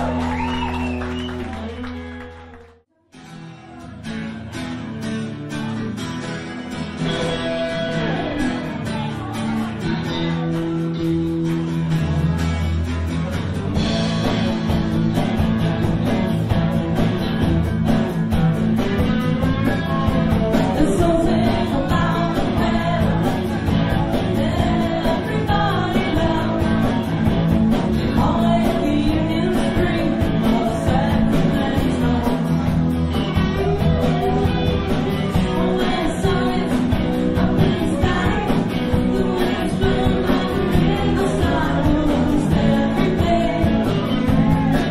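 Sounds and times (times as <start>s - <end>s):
live band with guitars and drums: 0.0s - 44.9s
woman singing lead: 19.1s - 44.9s.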